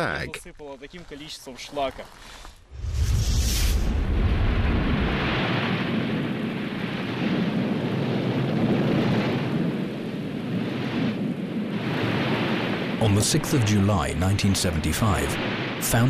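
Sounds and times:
deep low rumble: 2.7 - 5.4
volcano erupting roar: 2.7 - 10.4.

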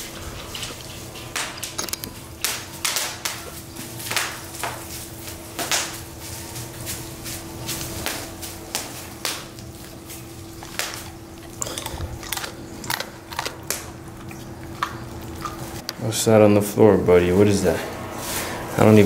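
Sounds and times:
bubble wrap popping underfoot: 2.4 - 11.2.

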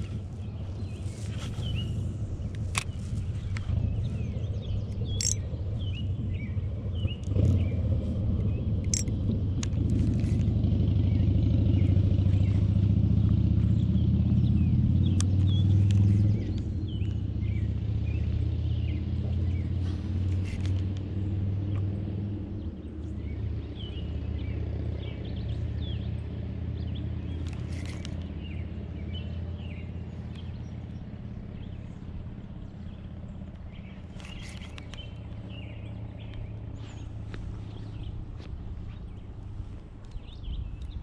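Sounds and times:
steady low rumble: 0.0 - 18.2, 26.8 - 41.0
songbirds chirping: 0.0 - 41.0
sharp clicks: 5.1 - 5.4.

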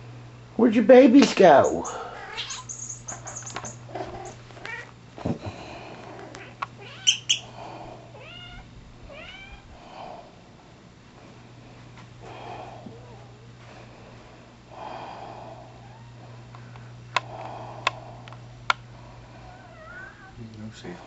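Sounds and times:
cat chirping meows: 1.6 - 4.9, 6.4 - 7.5, 8.2 - 9.6
squeaky toy squeaks: 2.4 - 3.8.

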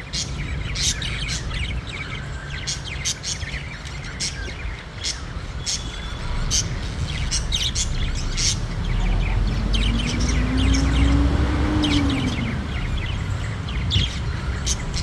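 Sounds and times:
budgerigars chirping: 0.0 - 15.0
low drone: 6.2 - 13.8.

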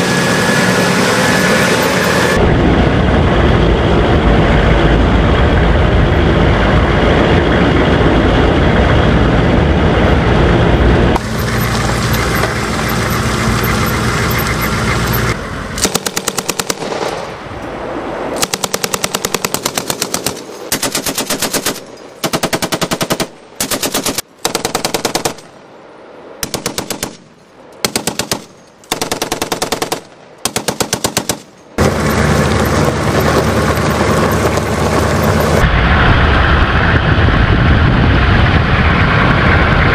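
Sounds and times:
vehicle engine running: 0.0 - 16.8, 31.8 - 39.9
machine gun firing bursts: 15.8 - 17.1, 18.4 - 25.5, 26.4 - 27.2, 27.8 - 32.1.

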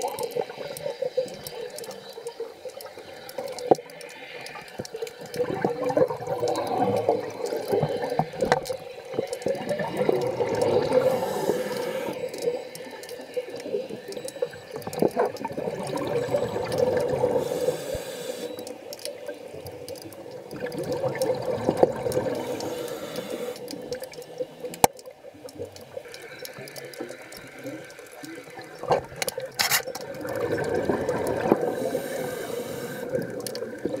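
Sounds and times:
underwater exhaled bubbles: 0.0 - 34.0.

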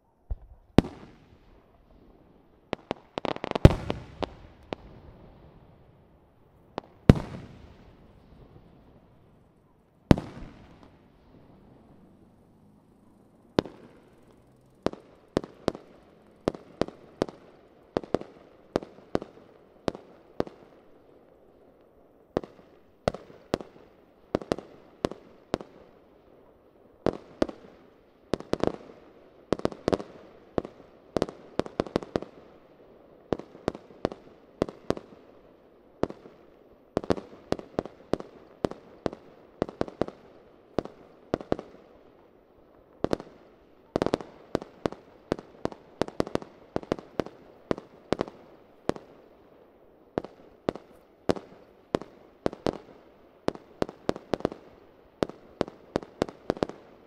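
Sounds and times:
fireworks bangs: 0.2 - 12.7, 13.6 - 20.7.

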